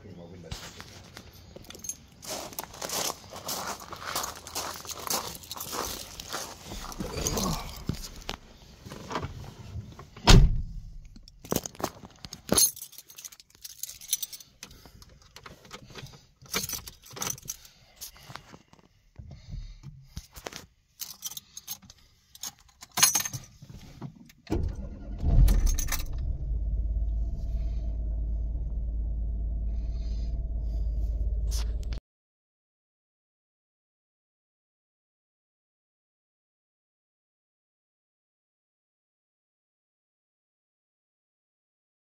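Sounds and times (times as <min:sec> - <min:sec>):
keys jangling: 0:01.6 - 0:02.2, 0:04.6 - 0:08.3, 0:11.2 - 0:18.3, 0:21.0 - 0:23.6, 0:25.5 - 0:26.1
car engine starting and idling: 0:24.5 - 0:32.0.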